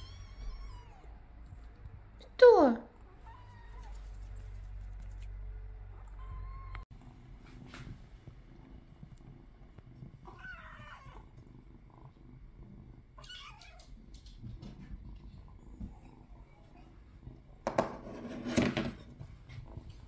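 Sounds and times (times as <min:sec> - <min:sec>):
faint low purring: 0:04.0 - 0:17.6.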